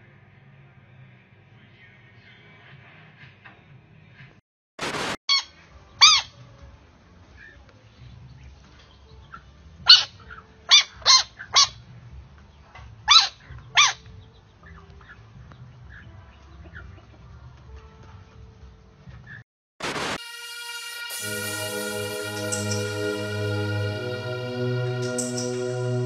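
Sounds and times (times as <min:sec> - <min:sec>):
dog yelping: 0:10.7 - 0:11.8, 0:13.1 - 0:14.0.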